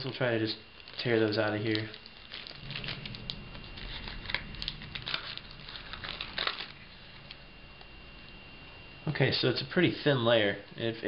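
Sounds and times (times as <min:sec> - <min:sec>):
plastic film crinkling and tearing: 0:00.8 - 0:07.4.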